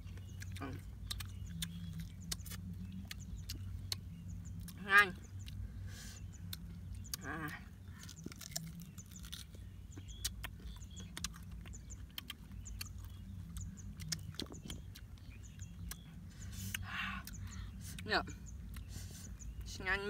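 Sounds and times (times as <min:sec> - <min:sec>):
crunchy chewing: 0:00.0 - 0:19.8
low hum: 0:00.0 - 0:20.0.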